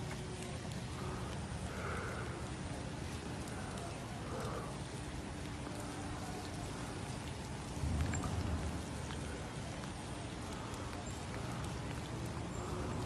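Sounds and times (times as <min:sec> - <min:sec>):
light rain falling: 0:00.0 - 0:13.0.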